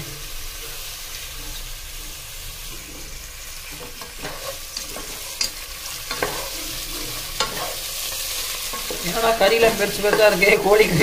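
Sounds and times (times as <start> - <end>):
meat sizzling in hot oil: 0.0 - 11.0
spatula scraping a pan: 2.6 - 11.0.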